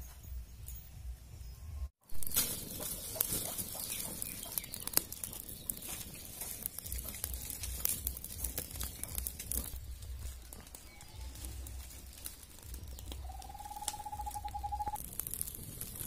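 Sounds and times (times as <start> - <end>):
fire crackling in a stove: 2.0 - 16.0
hiss of flame: 15.0 - 16.0.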